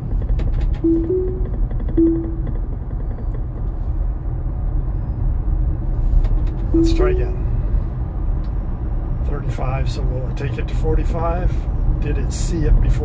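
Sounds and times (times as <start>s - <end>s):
road and tyre rumble: 0.0s - 13.0s
dashboard chimes: 0.9s - 2.6s, 6.8s - 7.4s.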